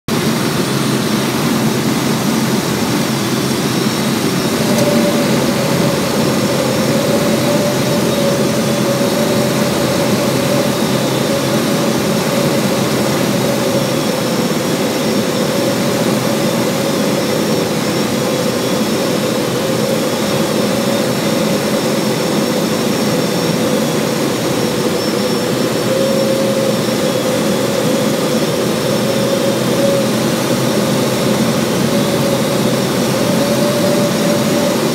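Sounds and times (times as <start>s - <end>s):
airplane engine and propeller: 0.1s - 34.9s
steady higher hum: 0.1s - 34.9s.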